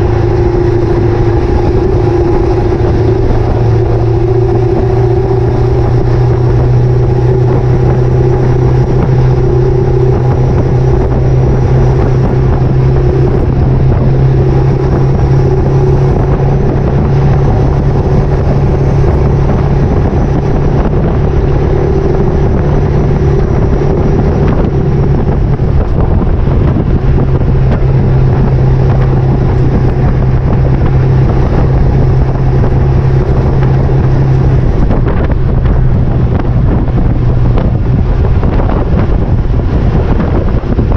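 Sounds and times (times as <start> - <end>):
diesel truck engine drone: 0.0 - 40.9
road noise: 0.0 - 40.9
wind buffeting microphone: 0.0 - 40.9.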